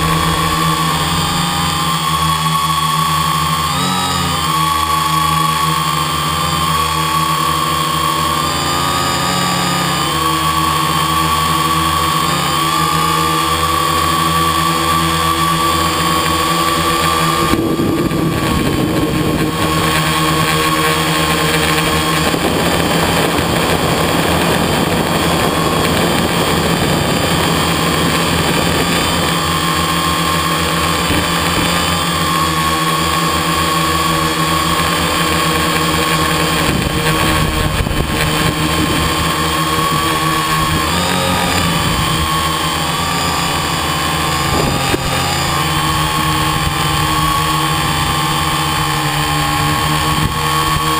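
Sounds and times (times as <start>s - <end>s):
quadcopter motors droning: 0.0s - 50.9s
wind on microphone: 17.3s - 29.8s, 36.4s - 50.9s.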